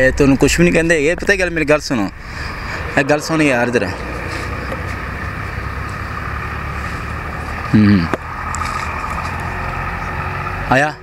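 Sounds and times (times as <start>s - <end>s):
faint steady tones: 0.0s - 7.8s
low background rumble: 0.0s - 10.1s.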